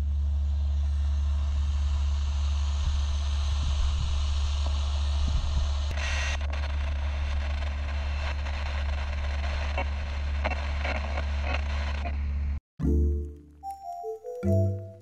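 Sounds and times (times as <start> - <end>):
radio static hiss: 4.7 - 12.6
crackles and clicks: 5.9 - 15.0.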